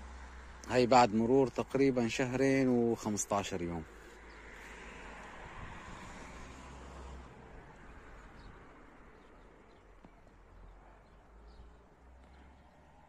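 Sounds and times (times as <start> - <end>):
wind rumble on microphone: 5.3 - 6.5.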